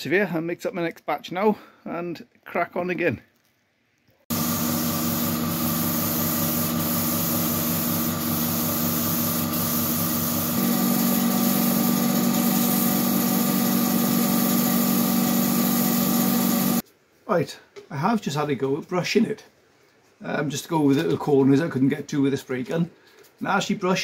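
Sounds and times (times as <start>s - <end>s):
spray gun hissing: 4.3s - 16.8s.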